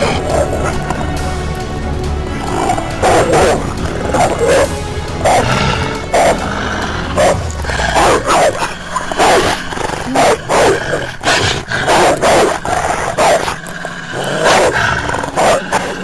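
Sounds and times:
dogs snarling and barking: 0.0 - 16.0.

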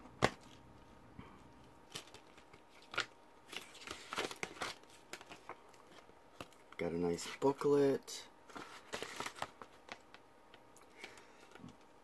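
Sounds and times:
plastic packaging crinkling: 1.6 - 7.5, 8.5 - 10.2.

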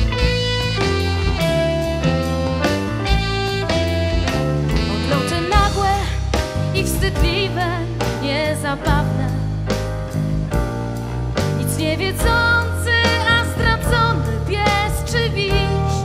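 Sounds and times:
live band playing jazz-pop: 0.0 - 16.0
woman singing with vibrato: 4.9 - 9.4, 11.6 - 16.0.

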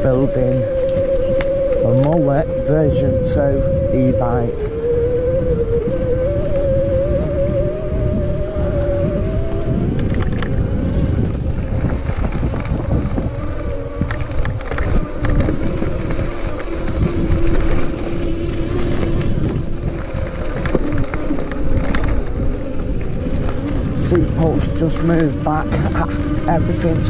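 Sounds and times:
electric motor whine: 0.0 - 27.0
wind buffeting microphone: 0.0 - 27.0
tyre rumble on gravel: 11.0 - 24.2.

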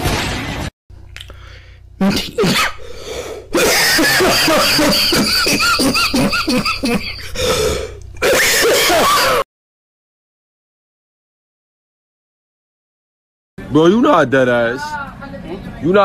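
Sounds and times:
man laughing: 3.5 - 7.6.

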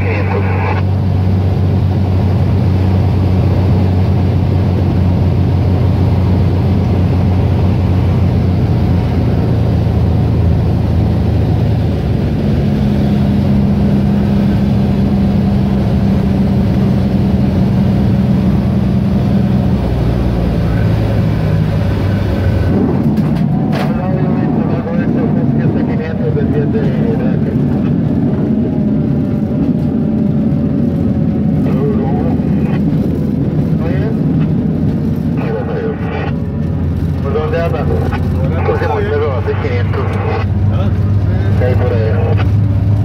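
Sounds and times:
light aircraft engine drone: 0.0 - 43.0.

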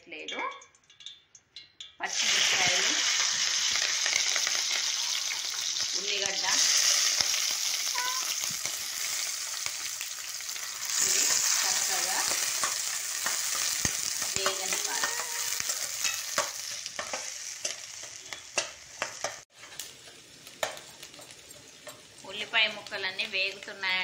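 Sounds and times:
onion sizzling in hot oil: 2.0 - 24.0
spatula scraping and tapping pan: 11.8 - 22.1.

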